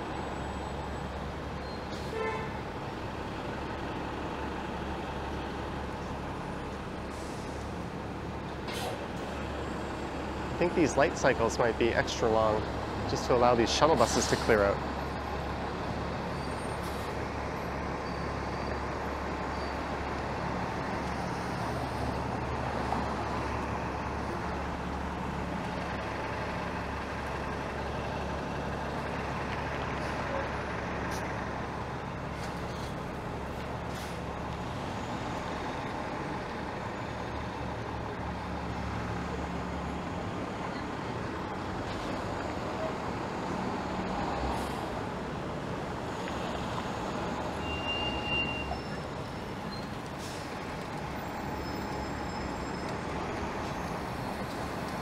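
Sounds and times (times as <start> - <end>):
bus diesel engine drone: 0.0 - 55.0
road noise: 0.0 - 55.0.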